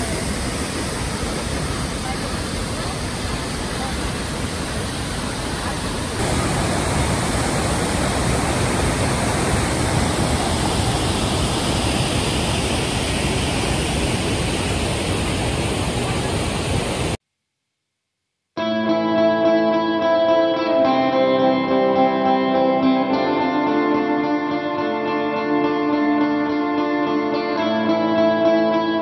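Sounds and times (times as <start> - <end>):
waterfall roaring: 0.0 - 17.2.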